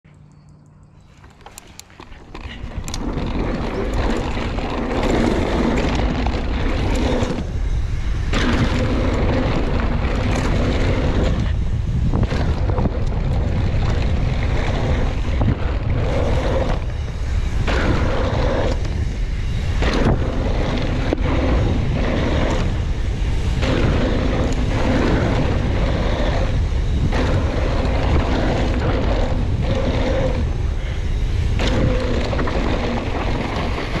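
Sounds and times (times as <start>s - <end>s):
hum: 0.0s - 34.0s
bike tyres on dirt trail: 1.0s - 34.0s
wind on microphone: 1.8s - 34.0s.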